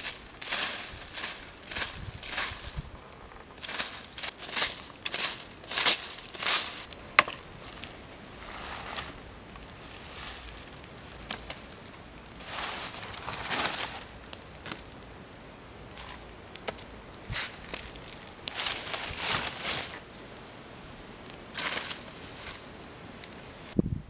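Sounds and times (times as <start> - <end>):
dry leaves crunching and rustling: 0.0 - 3.0, 3.6 - 11.8, 12.4 - 15.0, 15.9 - 22.8
twig snapping: 13.4 - 15.0, 15.9 - 20.1.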